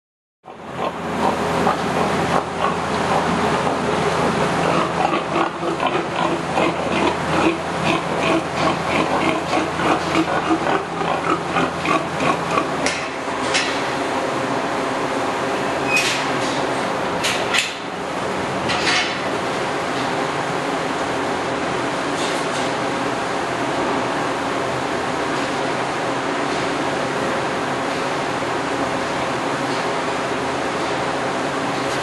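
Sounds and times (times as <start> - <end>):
steady background hum: 0.4 - 32.0
pigs grunting: 0.5 - 13.2.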